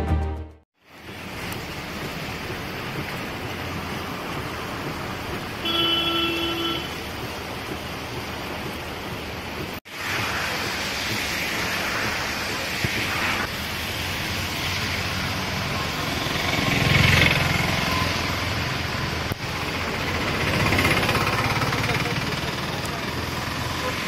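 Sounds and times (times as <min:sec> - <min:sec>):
cars passing on wet road: 0:00.8 - 0:24.0
heavy rain on a wet street: 0:00.8 - 0:24.0
car horn: 0:05.6 - 0:07.0.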